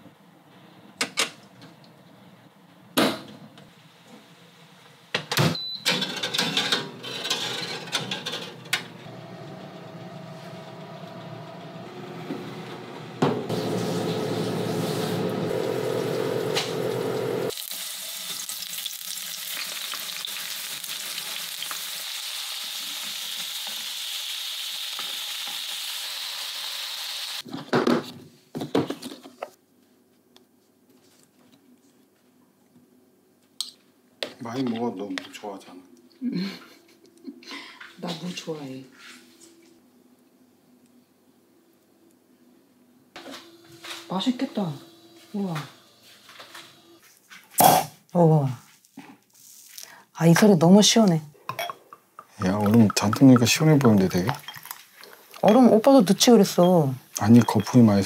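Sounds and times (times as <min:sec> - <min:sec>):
oven humming: 0:05.4 - 0:17.6, 0:43.0 - 0:47.0
sizzling hiss: 0:13.5 - 0:27.4.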